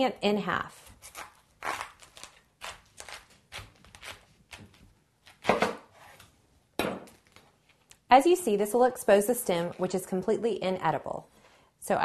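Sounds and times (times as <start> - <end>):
knife crunching through cabbage: 0.8 - 5.6.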